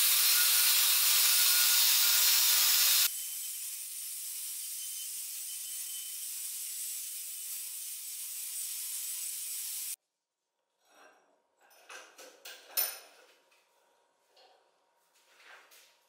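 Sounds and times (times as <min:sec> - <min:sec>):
angle grinder grinding metal: 0:00.0 - 0:10.0.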